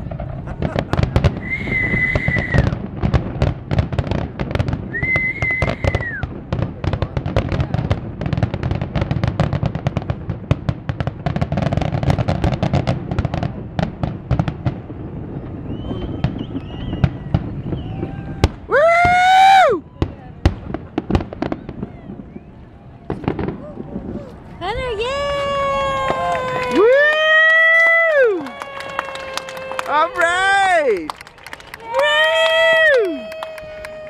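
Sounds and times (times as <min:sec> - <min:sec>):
fireworks bangs and crackles: 0:00.0 - 0:34.0
high firework whistle: 0:00.7 - 0:02.8, 0:04.8 - 0:06.3, 0:15.3 - 0:20.0, 0:21.4 - 0:24.4.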